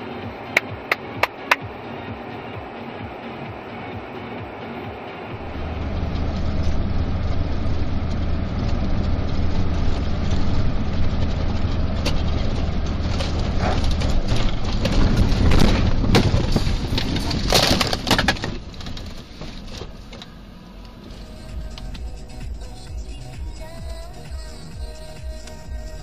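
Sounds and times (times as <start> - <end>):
vehicle rumbling: 0.0 - 26.0
crunching crash impacts: 11.5 - 20.0.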